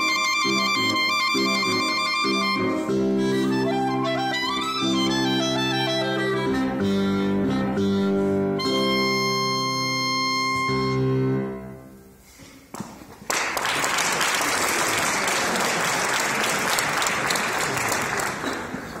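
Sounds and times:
clarinet holding a note: 0.0 - 11.8
audience applause: 12.8 - 19.0.

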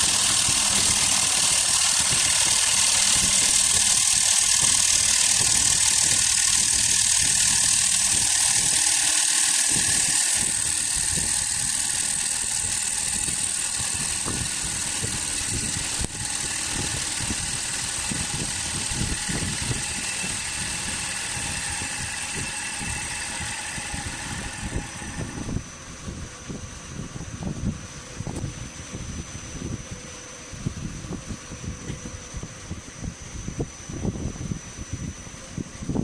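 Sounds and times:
tool scraping wood: 0.0 - 25.6
high hiss: 0.0 - 29.7
wood lathe drone: 0.0 - 36.0.

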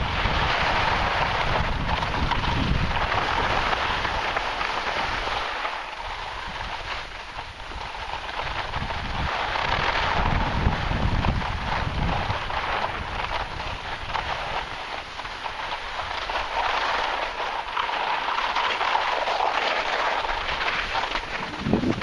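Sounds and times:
wind buffeting microphone: 0.0 - 4.3, 7.4 - 14.8, 20.4 - 22.0.

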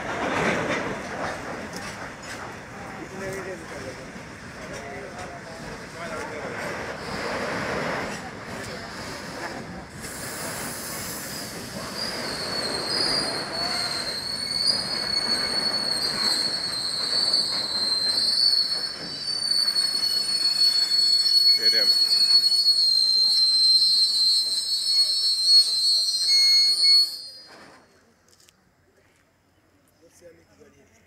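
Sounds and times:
train wheels squealing: 8.1 - 27.8.

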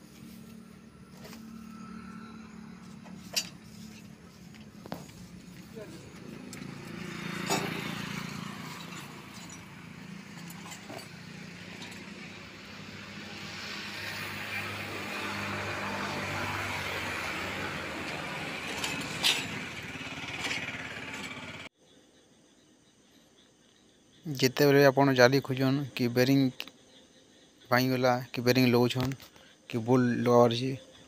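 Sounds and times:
engine hum with low drone: 0.0 - 21.7
sharp metallic knocks: 6.2 - 12.4.

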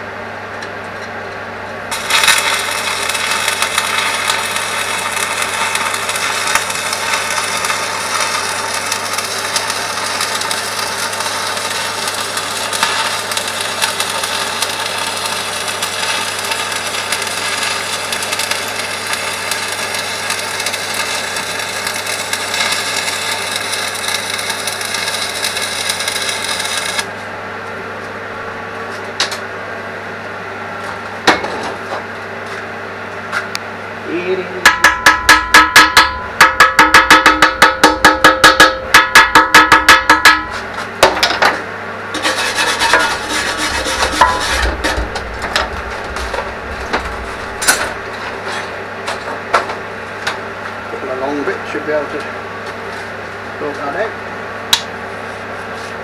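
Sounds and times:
crackly metalwork noise: 1.9 - 27.1, 34.6 - 51.5
low steady hum: 33.5 - 51.1.

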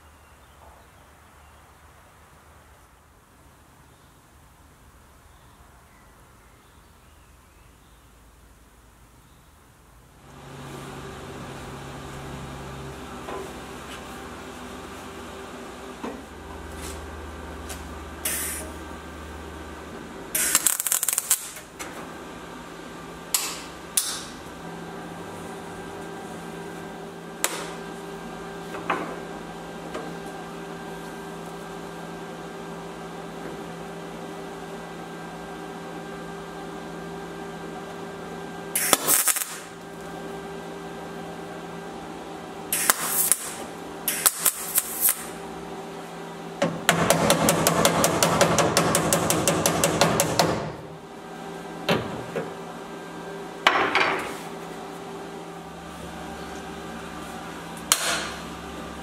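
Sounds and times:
steady welder hum: 10.1 - 59.0
welding crackle: 17.6 - 18.7, 20.3 - 21.8, 38.8 - 40.0, 42.7 - 45.4.

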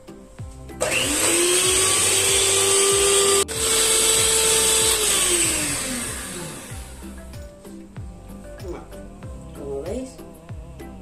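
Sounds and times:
electric hand mixer whirring: 0.8 - 7.3.

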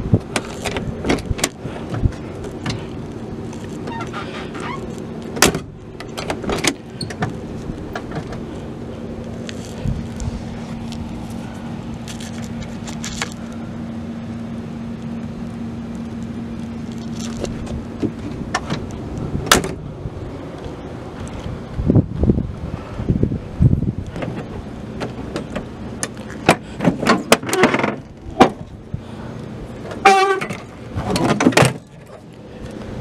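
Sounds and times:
low steady hum: 0.0 - 33.0
car door latches clunking: 0.2 - 2.9, 3.8 - 8.5, 17.4 - 19.8.

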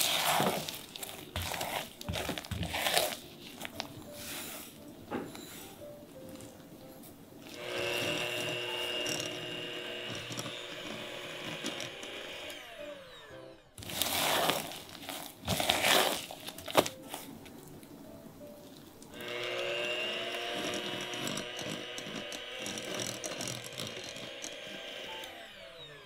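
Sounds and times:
electric hand mixer running: 0.0 - 3.2, 7.4 - 16.3, 19.1 - 26.0
scraping against bowl: 0.0 - 5.9.

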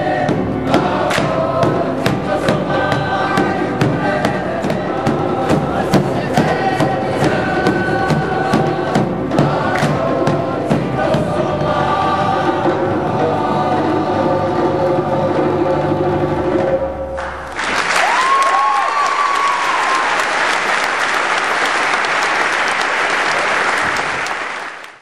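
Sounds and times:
boys' choir singing: 0.0 - 16.9
drums: 0.0 - 20.0
audience applause: 17.2 - 25.0
audience cheering: 17.4 - 25.0.

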